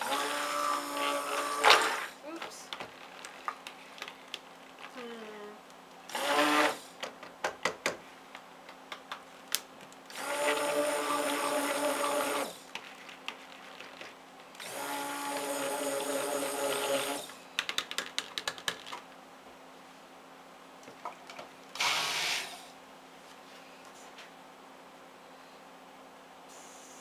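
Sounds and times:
stick blender running: 0.0 - 2.2, 6.1 - 7.0, 10.1 - 12.7, 14.6 - 17.4, 21.8 - 22.7.

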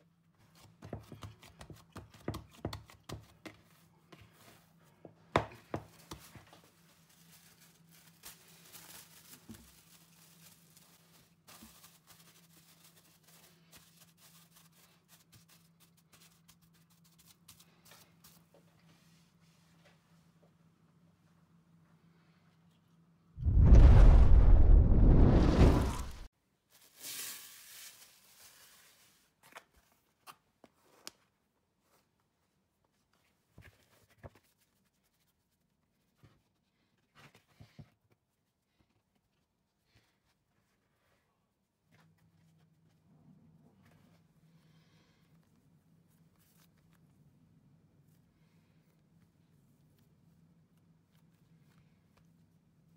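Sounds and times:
hands punching dough in bowl: 0.7 - 3.7
plastic rustle: 5.9 - 16.6
cling film crinkling: 6.5 - 14.7
deep sound effect: 23.4 - 26.3.

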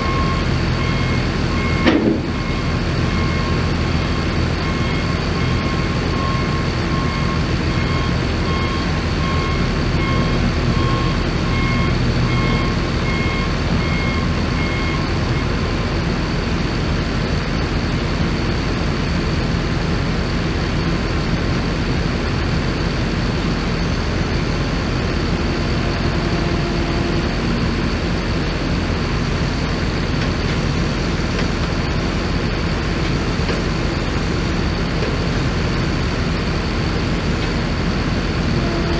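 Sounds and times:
back-up alarm beeping: 0.0 - 3.7, 4.6 - 15.5
heavy equipment engines running: 0.0 - 38.9.

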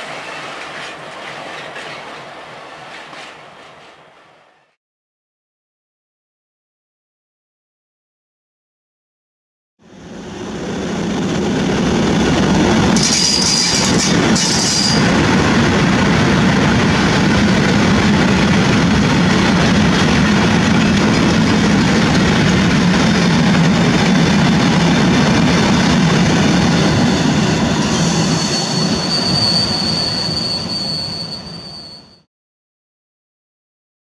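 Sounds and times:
train wheels rumbling on rail: 0.0 - 4.8, 10.0 - 32.2
high wheel squeals: 13.0 - 15.1, 26.6 - 32.3.

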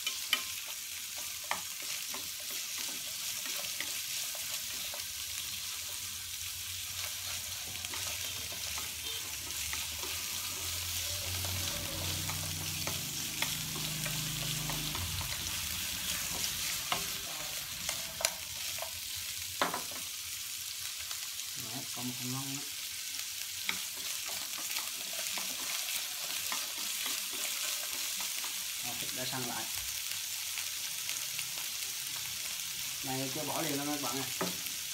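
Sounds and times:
meat sizzling in hot oil: 0.0 - 34.9
chopsticks clicking against pan: 11.3 - 15.6.

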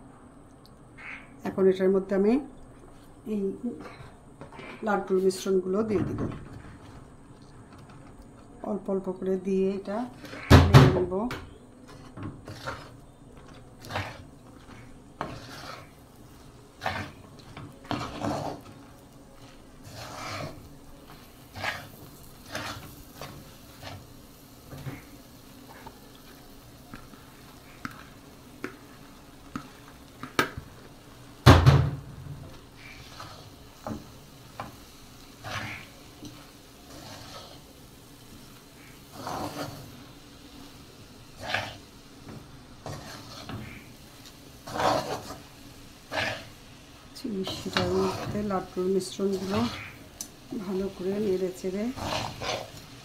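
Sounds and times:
metal spatula scraping a pan: 11.8 - 26.4, 32.7 - 53.0.

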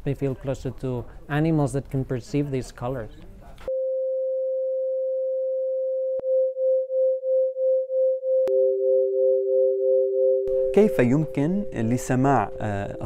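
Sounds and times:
lower steady electronic tone: 3.7 - 13.0
pure electronic sine tone: 3.7 - 13.0.

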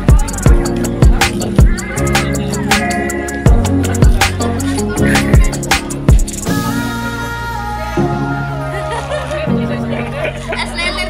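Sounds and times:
held chords: 0.0 - 11.0
deep bass drum hits: 3.5 - 4.3.

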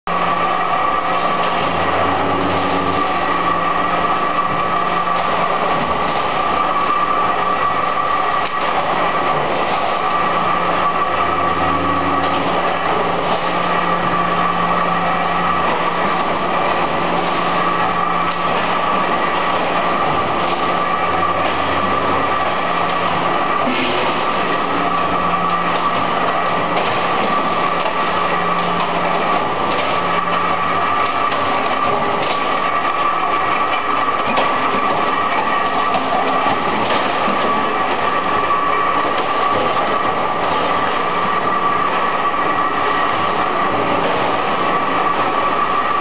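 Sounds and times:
deeper machine hum: 0.0 - 46.0
factory machines humming: 0.1 - 46.0.

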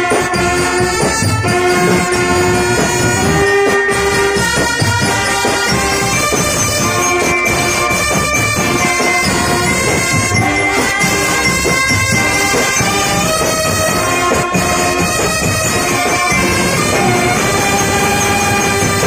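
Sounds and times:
low drum beats: 0.9 - 5.2
trumpets playing long notes: 1.3 - 5.5, 14.2 - 19.0.

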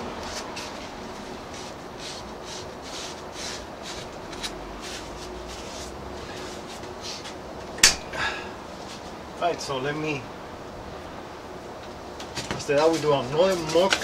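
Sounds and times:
hands rubbing on vinyl: 0.1 - 7.4.

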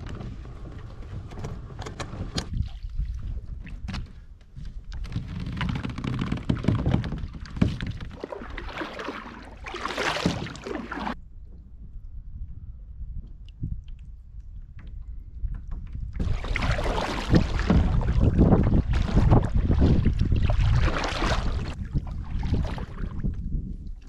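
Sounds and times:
paddle knocking against hull: 0.0 - 11.2, 14.8 - 23.4
paddle strokes in water: 0.0 - 11.2, 15.5 - 24.0
plastic kayak scraping over dirt: 5.0 - 11.2, 16.2 - 21.8.

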